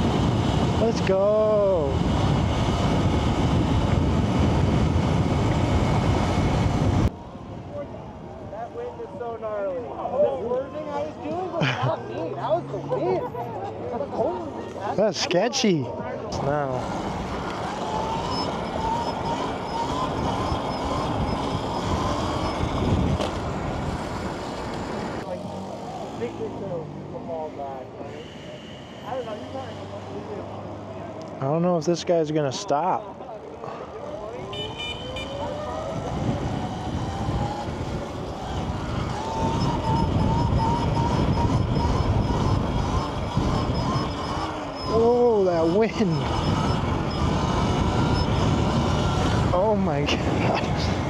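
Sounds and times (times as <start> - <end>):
wind rushing over microphone: 0.0 - 8.5, 16.8 - 25.2, 35.5 - 51.0.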